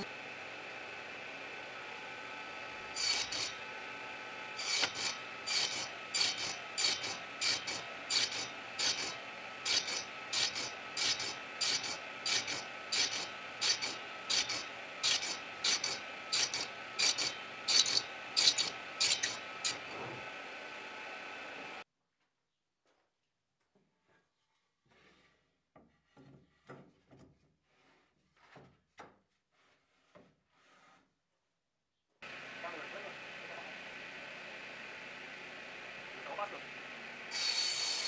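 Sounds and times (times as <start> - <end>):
abrasive tool scraping wood: 4.6 - 20.3, 24.9 - 31.2.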